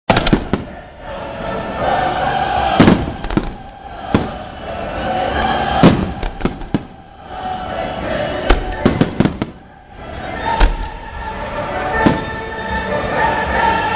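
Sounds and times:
firework bangs and crackling: 0.1s - 1.0s, 2.6s - 7.4s, 8.4s - 9.8s, 10.6s - 11.2s, 11.9s - 12.8s
background music: 0.1s - 13.9s.

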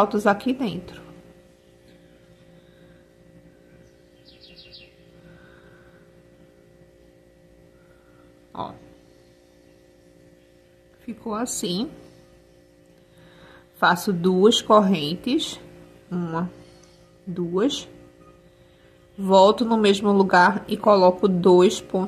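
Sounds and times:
steady electrical hum: 0.0s - 22.0s
faint high chirps: 17.9s - 19.2s.

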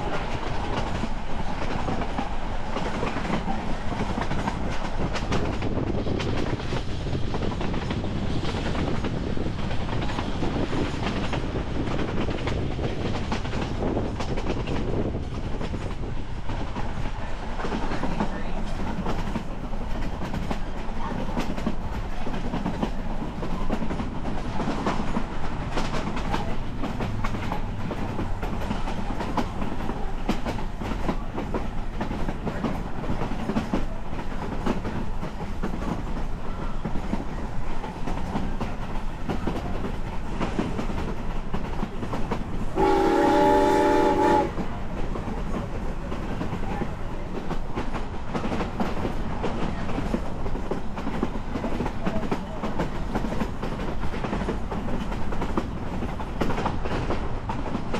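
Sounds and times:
train wheels clattering on rails: 0.0s - 57.9s
steam locomotive whistle: 42.8s - 44.6s.

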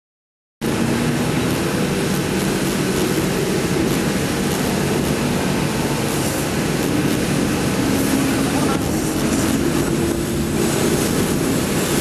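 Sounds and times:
road traffic rumble: 0.6s - 12.0s.

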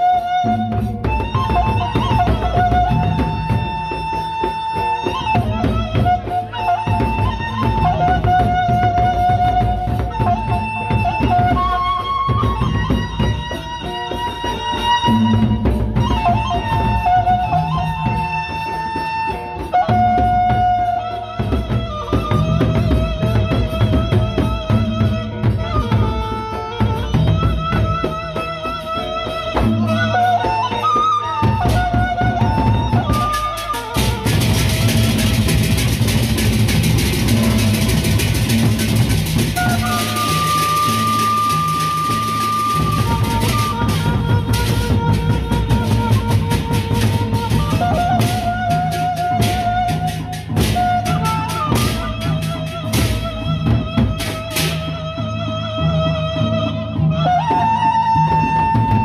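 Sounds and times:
cymbals: 0.0s - 55.4s
large drums beaten: 0.0s - 59.0s
wavering melody of held notes: 28.5s - 54.3s.

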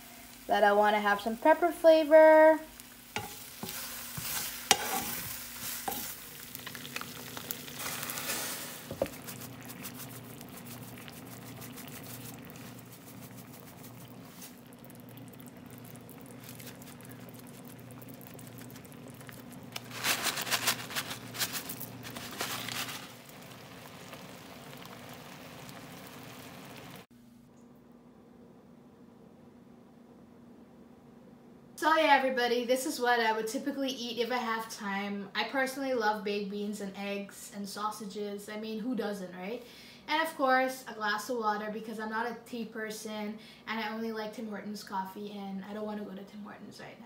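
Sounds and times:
food sizzling in a frying pan: 0.0s - 27.1s
stirring in a pan: 2.6s - 27.1s.

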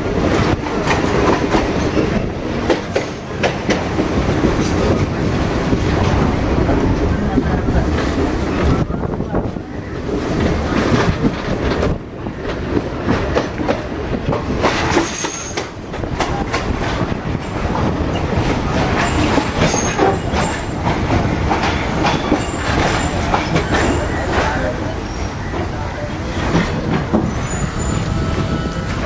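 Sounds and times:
train rumble: 0.0s - 29.0s
wheels clattering over rail joints: 10.1s - 28.0s
high wheel squeals: 19.0s - 20.8s, 27.3s - 29.0s.

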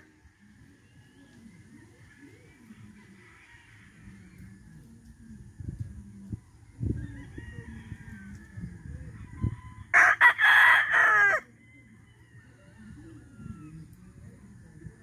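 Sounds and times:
rooster crowing: 6.8s - 13.8s.

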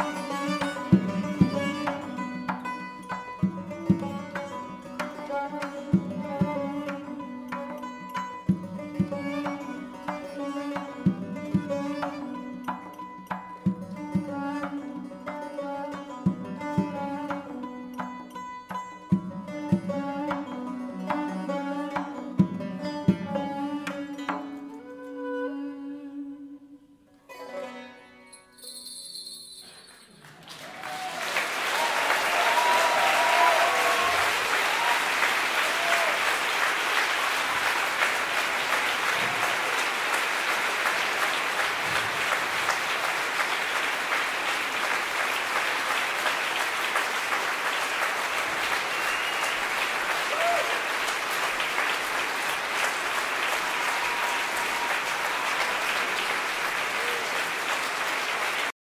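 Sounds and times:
ensemble music notes: 19.8s - 27.3s
audience applauding: 30.0s - 58.8s.

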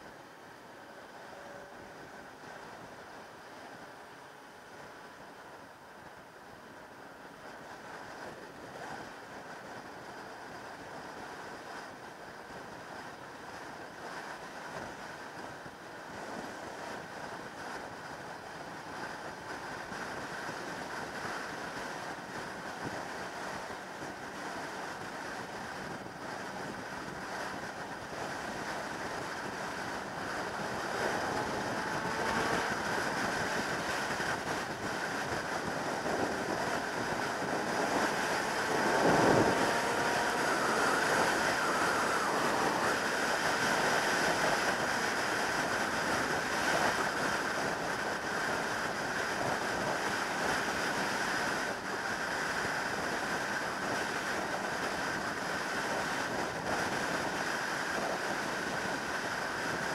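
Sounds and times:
wind rushing over microphone: 0.0s - 59.9s
faint motorcycle engine: 35.3s - 44.3s.

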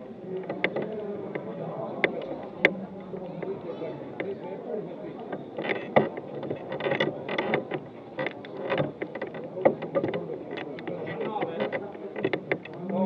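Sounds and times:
murmur of voices: 0.0s - 13.0s.

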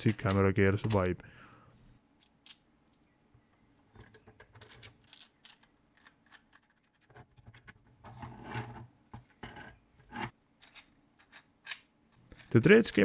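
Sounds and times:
plastic parts rubbing: 3.8s - 12.6s
plastic clicks and scrapes: 3.9s - 11.8s.

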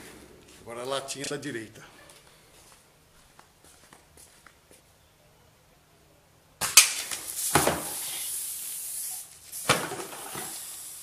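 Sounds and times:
beer spraying from can: 7.2s - 11.0s.

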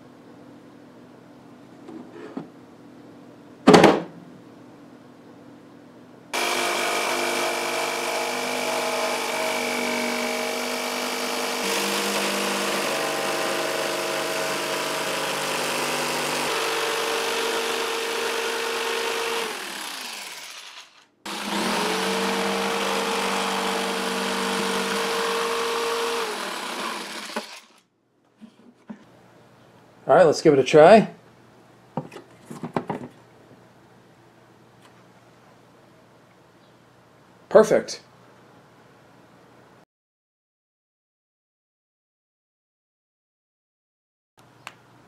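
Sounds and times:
jigsaw cutting plastic: 6.4s - 27.9s.

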